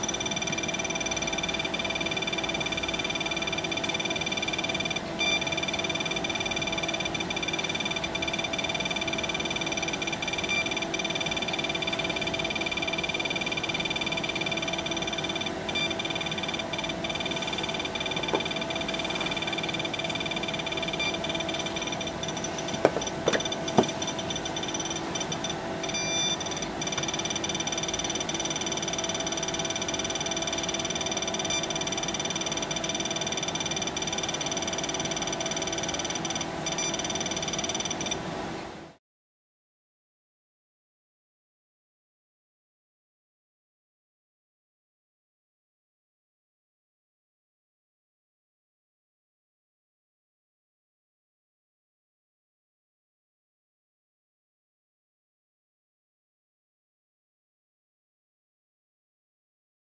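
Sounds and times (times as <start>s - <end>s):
high-pitched alarm tone: 0.0s - 38.3s.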